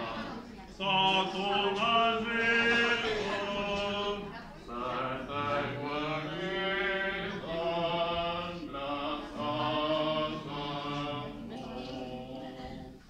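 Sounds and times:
voices singing a hymn: 0:00.0 - 0:13.0.

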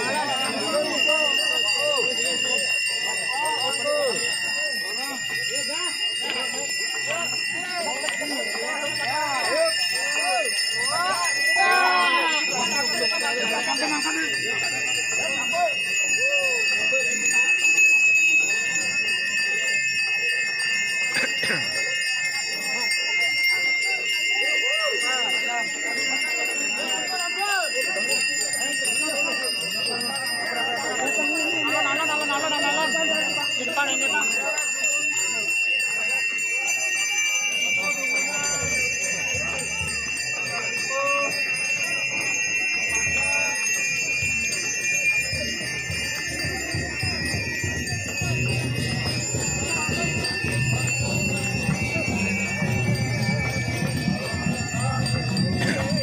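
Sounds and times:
people calling out: 0:00.0 - 0:17.2
bells ringing: 0:00.0 - 0:56.0
crowd murmuring: 0:00.0 - 0:56.0.

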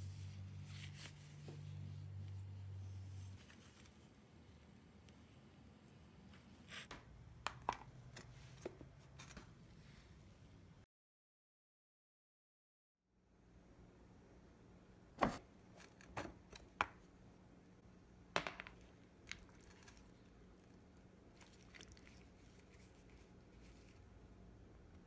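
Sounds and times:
hand squishing marinade into meat: 0:19.0 - 0:24.2.

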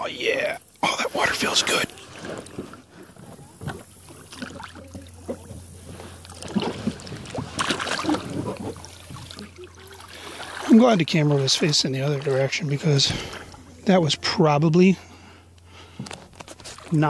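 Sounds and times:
water splashing around kayak: 0:00.9 - 0:14.3, 0:15.8 - 0:17.0.

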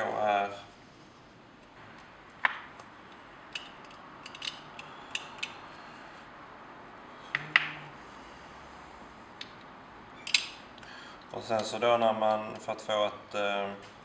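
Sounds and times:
metal type clicking: 0:03.5 - 0:05.6.

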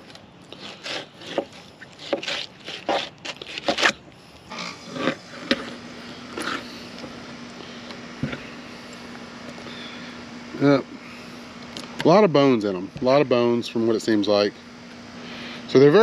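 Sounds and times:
knife scraping on plastic: 0:00.5 - 0:06.8.

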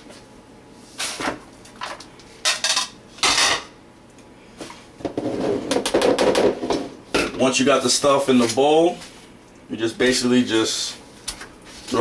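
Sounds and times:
dishes clattering and scraping: 0:02.4 - 0:03.7.

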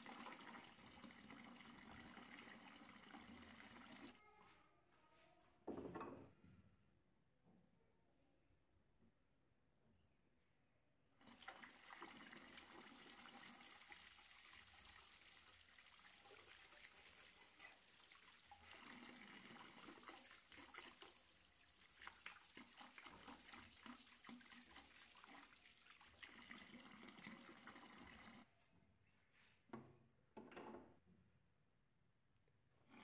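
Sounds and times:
brush scrubbing metal blade: 0:13.0 - 0:18.6, 0:19.6 - 0:25.3.

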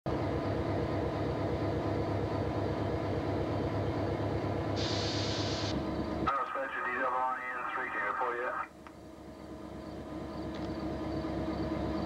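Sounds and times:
diesel locomotive engine rumble: 0:00.1 - 0:12.0
radio squelch hiss: 0:04.8 - 0:08.7.

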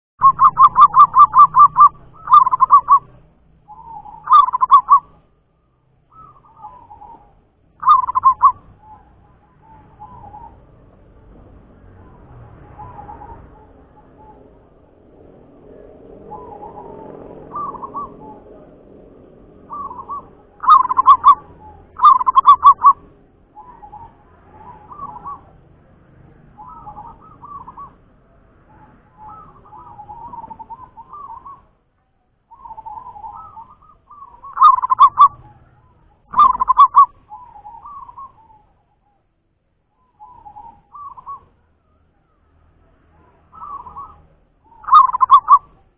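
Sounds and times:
dove cooing: 0:00.2 - 0:05.3, 0:06.1 - 0:11.1, 0:12.0 - 0:25.9, 0:26.5 - 0:31.8, 0:32.5 - 0:39.2, 0:40.0 - 0:45.9.

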